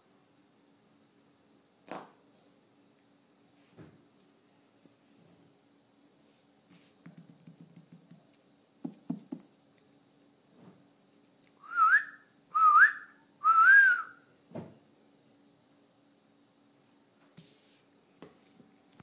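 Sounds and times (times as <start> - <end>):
person whistling: 11.6 - 14.2
soft thud: 14.5 - 14.8.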